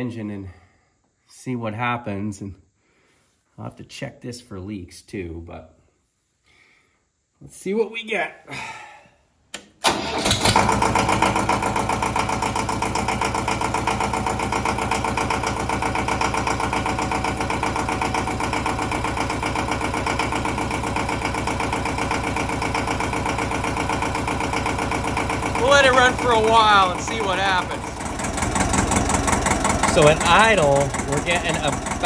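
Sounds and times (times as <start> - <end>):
diesel engine starting and idling: 9.8 - 32.0.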